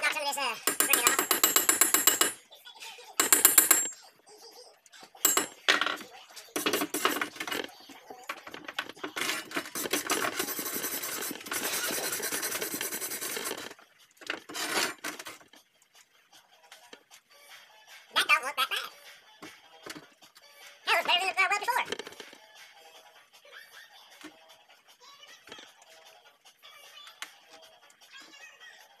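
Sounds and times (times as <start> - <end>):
hand tool knocking on steel: 0.7 - 2.4, 3.2 - 3.9, 5.3 - 5.5.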